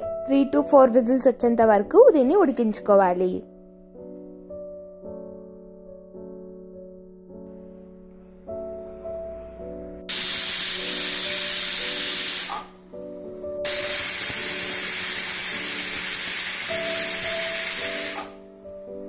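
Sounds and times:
pressure cooker whistling: 10.1 - 12.8, 13.7 - 18.4.

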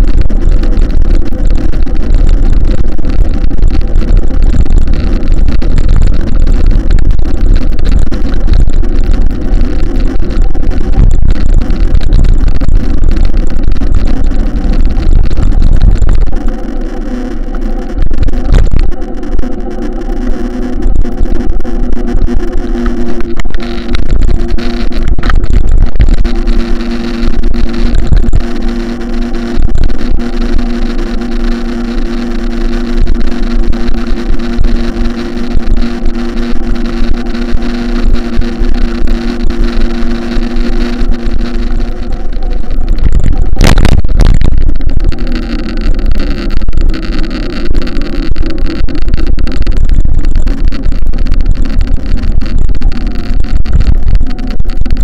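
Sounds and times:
heavy low rumble: 0.0 - 55.0
loud noisy burst: 0.0 - 55.0
motor running: 0.0 - 55.0.

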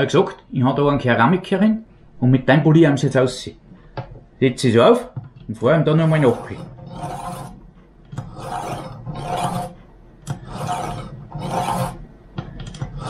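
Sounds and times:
knife rasping on sharpener rods: 5.9 - 13.0.

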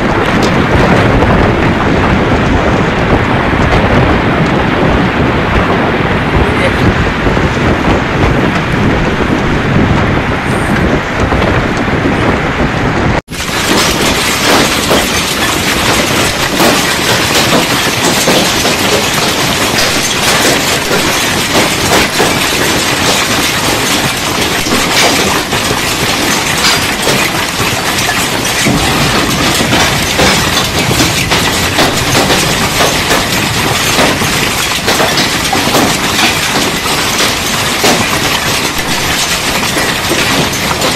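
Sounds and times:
heavy rain: 0.0 - 40.9
strong wind on microphone: 0.0 - 40.9.

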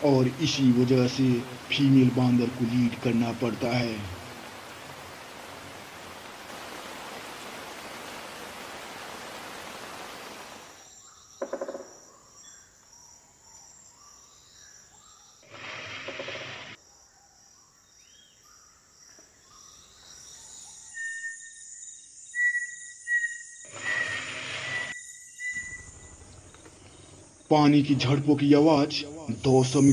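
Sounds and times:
whistled bird calls: 19.5 - 27.1.

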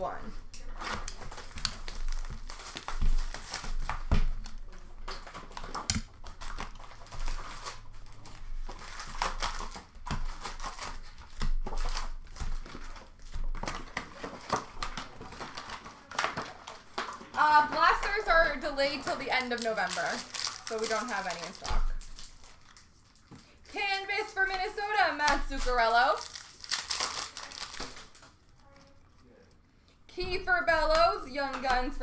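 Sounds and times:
foil wrappers crinkling: 0.0 - 29.7
packs ripping open: 0.6 - 17.3, 19.0 - 23.5, 25.2 - 29.5.

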